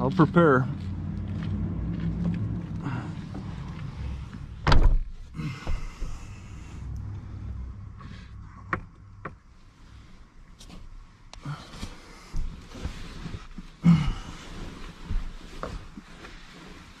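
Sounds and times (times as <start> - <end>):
steady low hum: 0.0 - 16.2
thump: 4.6 - 6.2.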